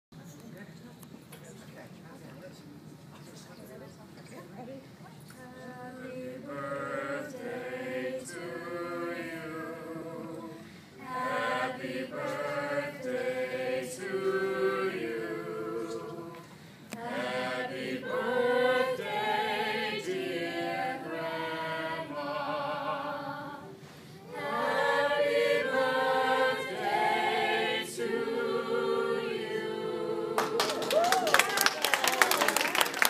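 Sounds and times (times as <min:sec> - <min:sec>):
group singing a cappella: 0:05.4 - 0:30.8.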